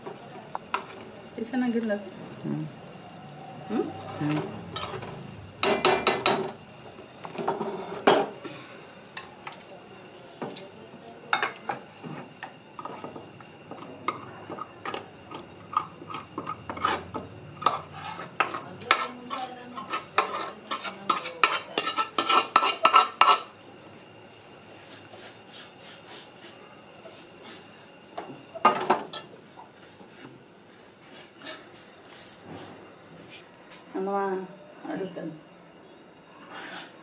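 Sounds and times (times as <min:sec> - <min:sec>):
spoon scraping metal pot: 0:04.6 - 0:06.4, 0:12.4 - 0:23.5.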